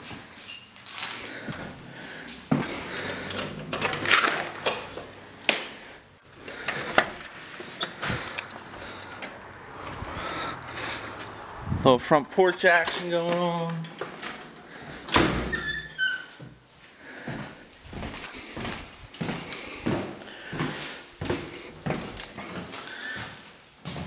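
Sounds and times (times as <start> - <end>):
door opening clicks: 3.2 - 5.6.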